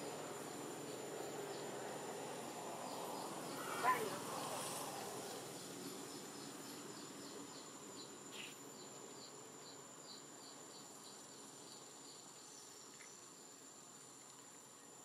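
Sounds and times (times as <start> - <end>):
short high insect chirps: 6.2 - 13.5.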